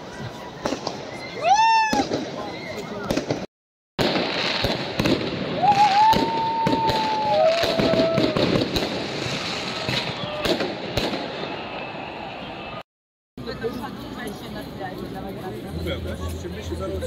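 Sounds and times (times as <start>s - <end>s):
crowd hubbub: 0.0s - 3.4s, 13.4s - 17.0s
fireworks bangs and crackles: 0.0s - 12.1s
whistling tone: 10.0s - 10.4s, 11.4s - 12.8s.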